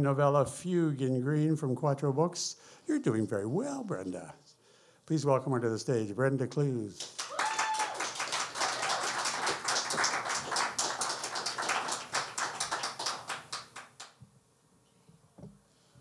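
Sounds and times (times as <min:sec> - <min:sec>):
audience clapping: 0:07.0 - 0:14.2.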